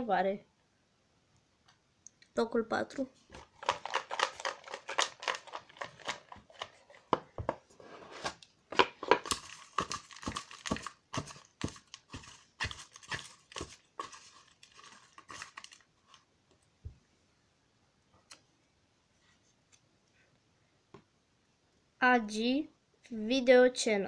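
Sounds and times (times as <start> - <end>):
paper slips rustling in a box: 3.4 - 7.0, 9.2 - 15.9.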